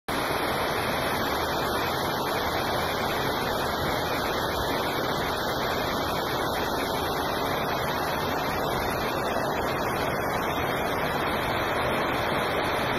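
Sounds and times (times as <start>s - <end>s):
waterfall rushing: 0.1s - 12.9s.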